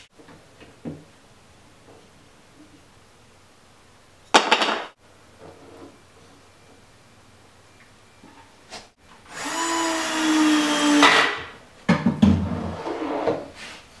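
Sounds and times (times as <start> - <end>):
power drill driving a screw: 9.3 - 11.4.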